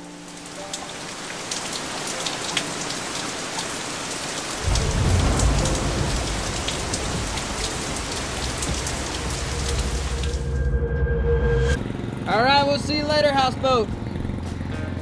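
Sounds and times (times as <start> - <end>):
rain drops ticking: 0.0 - 10.6
deep low rumble: 4.6 - 11.9.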